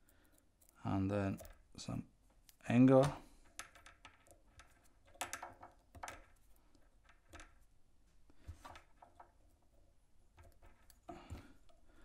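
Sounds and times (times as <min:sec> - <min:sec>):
fingers clicking and rubbing thread: 0:00.0 - 0:07.8, 0:08.4 - 0:11.9.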